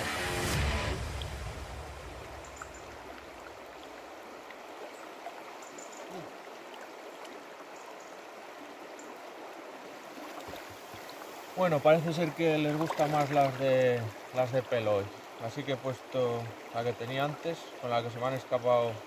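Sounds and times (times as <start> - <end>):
background music: 0.0 - 2.1
river water flowing: 0.0 - 19.0.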